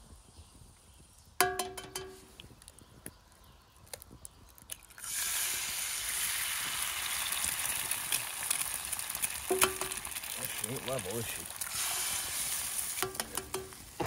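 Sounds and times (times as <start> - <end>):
egg sizzling in hot pan: 4.6 - 14.0.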